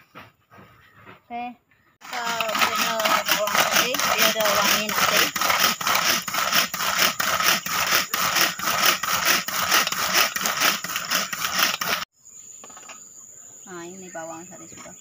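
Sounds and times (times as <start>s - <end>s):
blades chopping onion: 2.2s - 12.0s.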